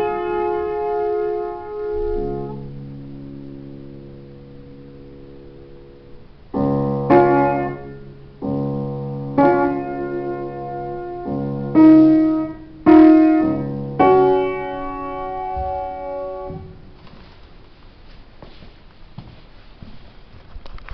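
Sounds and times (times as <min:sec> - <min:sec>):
upright piano chords: 0:00.0 - 0:17.8.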